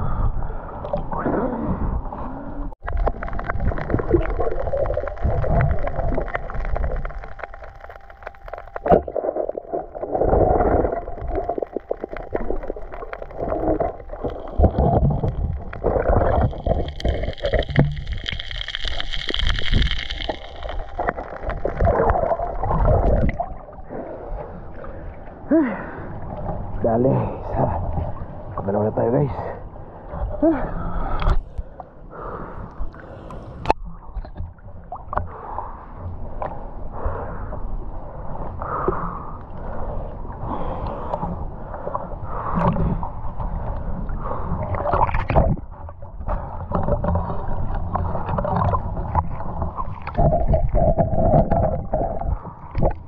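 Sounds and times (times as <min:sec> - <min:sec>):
gurgling water and bubbles: 0:00.0 - 0:53.0
small clicks and crackles: 0:02.8 - 0:23.4.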